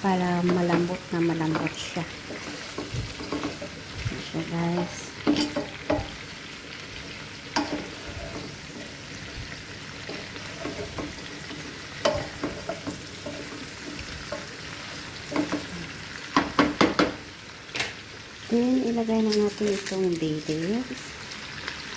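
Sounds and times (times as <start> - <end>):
food sizzling in a pan: 0.0 - 21.9
wooden spatula scraping pan: 0.4 - 6.2, 7.5 - 15.8.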